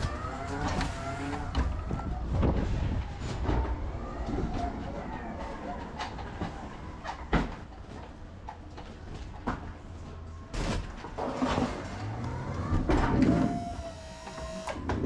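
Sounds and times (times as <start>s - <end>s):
electric pallet truck motor whine: 0.0s - 1.7s, 11.8s - 15.0s
wheels and pallet clattering: 0.0s - 13.8s.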